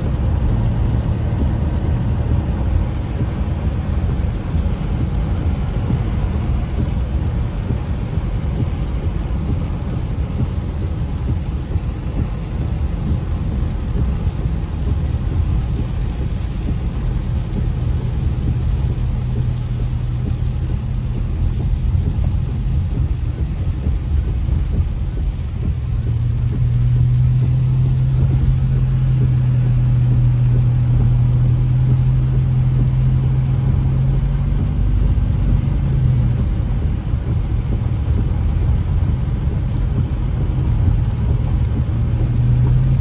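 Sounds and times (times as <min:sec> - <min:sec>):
engine and tyres rumbling: 0:00.0 - 0:43.0
low droning hum: 0:00.0 - 0:43.0.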